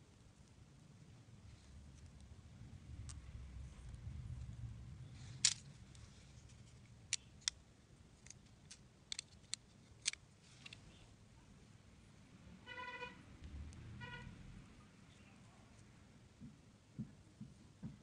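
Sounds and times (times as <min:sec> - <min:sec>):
faint handling rustle: 0:08.2 - 0:11.2.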